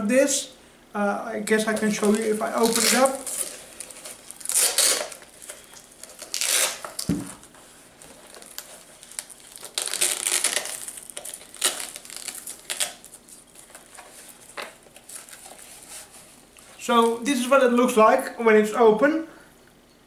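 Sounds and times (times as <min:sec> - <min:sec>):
straps ripping and rustling: 0:01.5 - 0:17.2.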